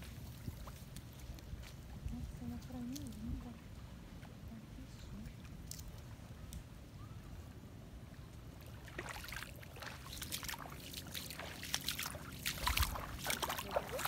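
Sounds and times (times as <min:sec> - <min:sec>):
footsteps splashing through water: 0:00.0 - 0:03.6, 0:08.6 - 0:14.0.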